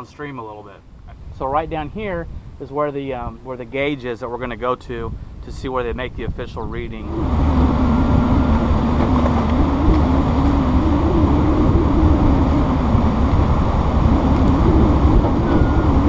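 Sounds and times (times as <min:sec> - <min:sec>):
outboard motor drone: 0:06.7 - 0:16.0.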